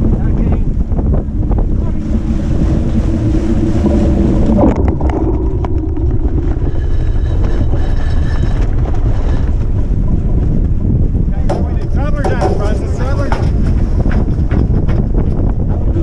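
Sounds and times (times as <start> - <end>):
water rushing past hull: 0.0 - 15.7
wind buffeting microphone: 0.0 - 16.0
sharp knocks: 11.4 - 15.1.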